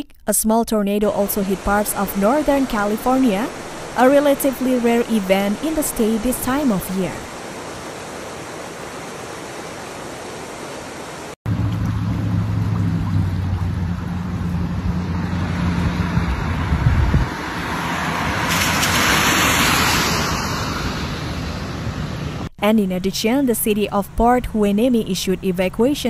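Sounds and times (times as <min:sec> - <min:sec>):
rush of noise: 0:01.5 - 0:22.5
low steady hum: 0:11.5 - 0:17.3.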